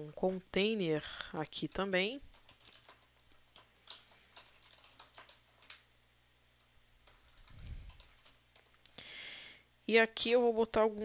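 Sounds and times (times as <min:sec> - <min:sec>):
keyboard typing: 0:02.2 - 0:05.9, 0:06.6 - 0:08.8.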